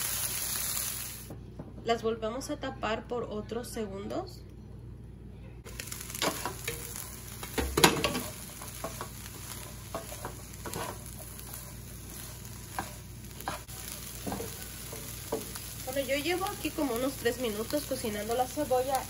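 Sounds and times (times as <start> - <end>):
onions sizzling in a skillet: 0.0 - 1.3, 5.7 - 19.0
wooden spatula scraping: 8.0 - 15.7.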